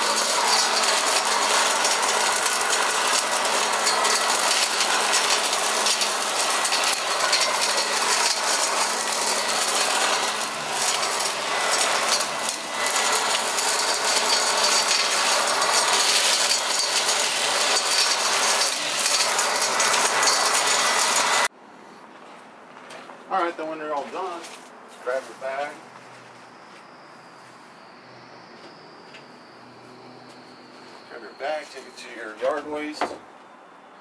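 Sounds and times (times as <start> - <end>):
leaf vacuum motor hum: 0.0 - 21.5
leaves rattling through impeller: 0.0 - 21.5.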